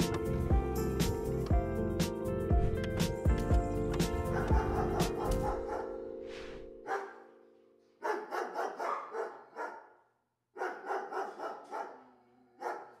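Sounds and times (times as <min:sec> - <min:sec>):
held musical chord: 0:00.0 - 0:08.0
dog barking: 0:04.2 - 0:06.0, 0:06.8 - 0:07.4, 0:08.0 - 0:13.0.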